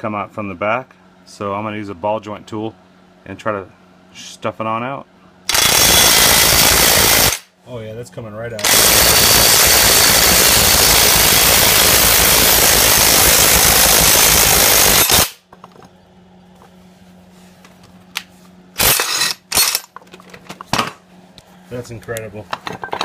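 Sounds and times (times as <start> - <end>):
impact wrench hammering: 18.8 - 20.0.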